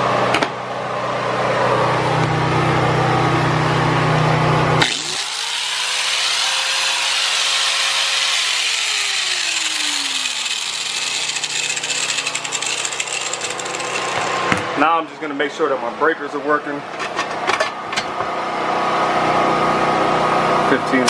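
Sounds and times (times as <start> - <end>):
loud low hum: 0.0 - 21.0
angle grinder whining: 1.6 - 14.9.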